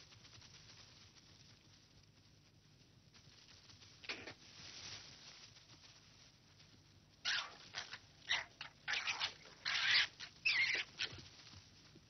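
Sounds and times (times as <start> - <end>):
foxes screeching and yelping: 7.2 - 11.3.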